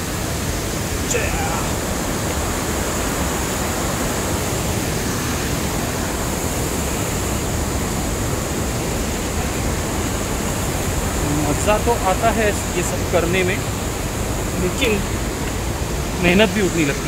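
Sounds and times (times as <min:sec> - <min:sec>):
large waterfall rushing: 0:00.0 - 0:17.0.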